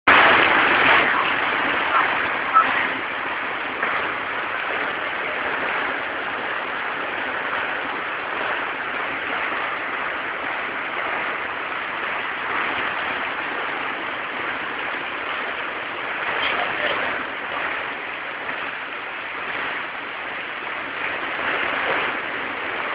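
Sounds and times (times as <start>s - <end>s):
heavy rain on paving: 0.1s - 22.9s.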